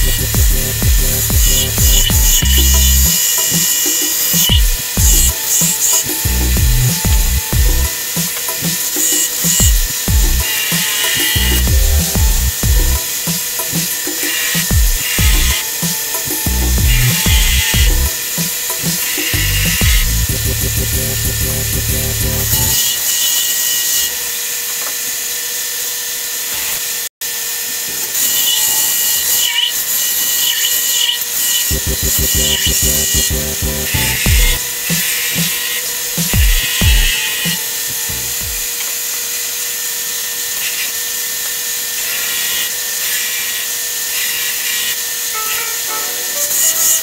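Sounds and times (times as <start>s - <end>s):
low thumps: 0.0s - 2.7s
background music: 0.0s - 22.8s, 31.7s - 38.6s, 45.3s - 47.0s
belt sander grinding steel: 0.0s - 47.0s.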